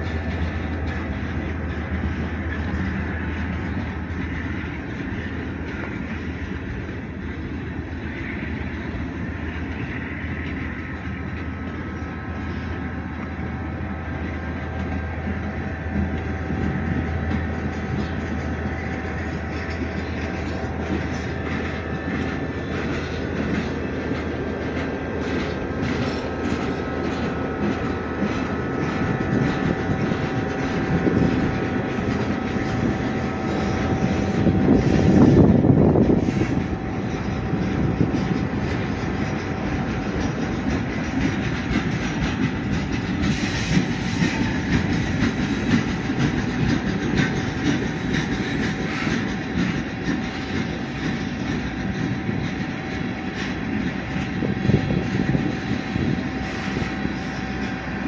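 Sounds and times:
train wheels rumbling on rail: 0:00.0 - 0:58.0
wheel clicks over rail joints: 0:14.2 - 0:57.9.

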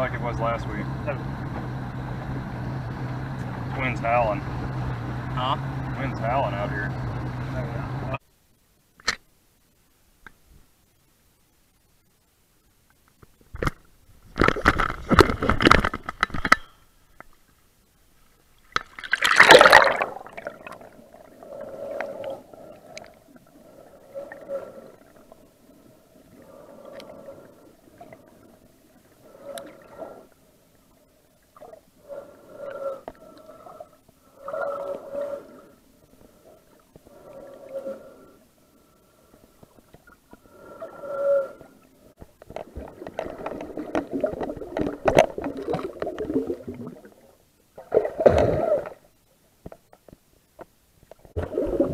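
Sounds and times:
splash into water: 0:18.7 - 0:20.7
underwater breathing: 0:19.6 - 0:30.6, 0:31.3 - 0:47.2.

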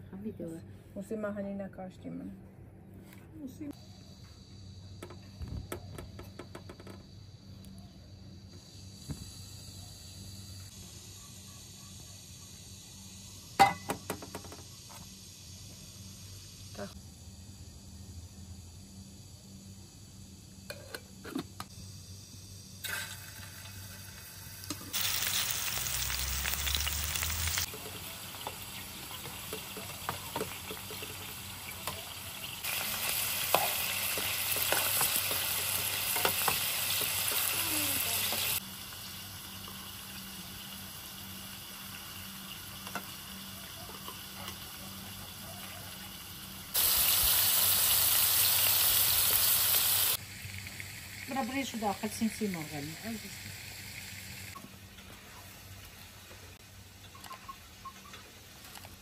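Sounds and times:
meatballs sizzling in oil: 0:21.7 - 0:54.6.

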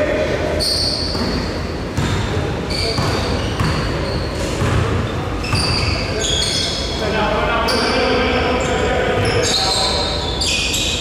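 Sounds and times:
sneakers squeaking on floor: 0:00.5 - 0:07.0, 0:09.2 - 0:11.0.

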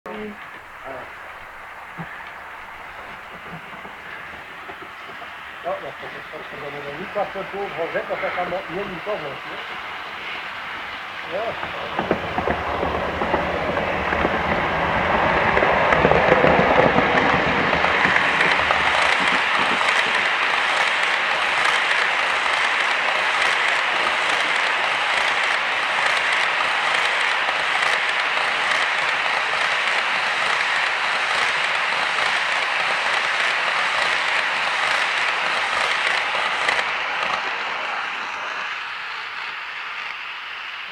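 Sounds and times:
locomotive low rumble: 0:00.1 - 0:40.9
model train wheels clicking on rail joints: 0:00.2 - 0:40.9.

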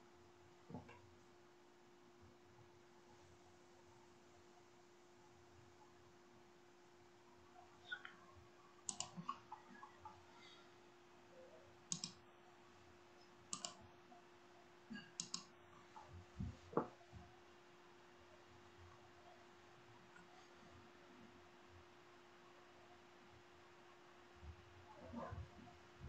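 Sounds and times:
low steady hum: 0:00.0 - 0:26.0
sharp clicks: 0:08.9 - 0:09.2, 0:11.9 - 0:12.2, 0:13.5 - 0:13.8, 0:15.2 - 0:15.5.

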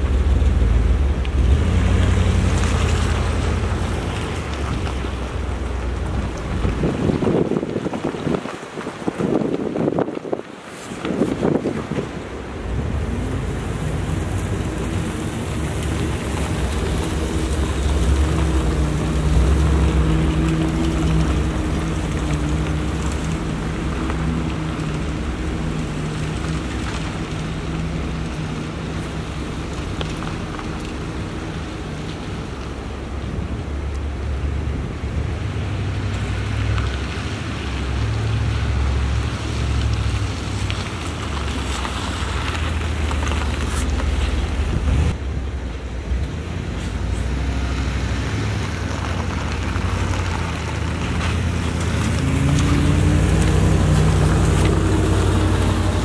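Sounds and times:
wind on microphone: 0:00.0 - 0:30.4, 0:42.8 - 0:45.4
truck engine rumbling: 0:00.0 - 0:56.0.

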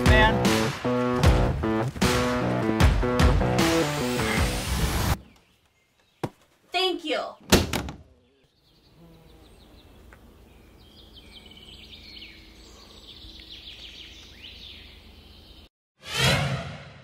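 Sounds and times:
birds chirping and singing: 0:05.2 - 0:15.7.

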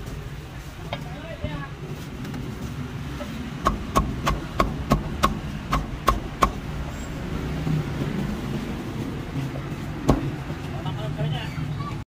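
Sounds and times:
cleaver chopping on wooden block: 0:03.6 - 0:06.6.

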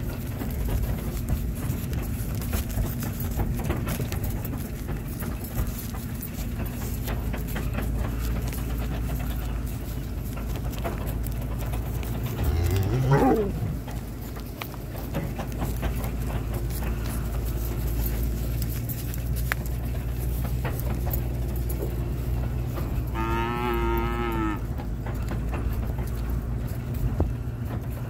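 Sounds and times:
low steady rumble: 0:00.0 - 0:28.0
cattle mooing: 0:12.2 - 0:14.0, 0:23.1 - 0:24.8.

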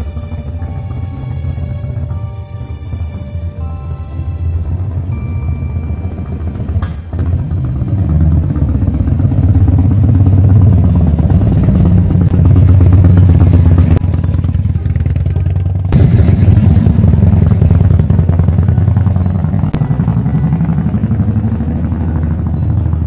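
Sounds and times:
motorcycle engine revving: 0:04.7 - 0:23.0.

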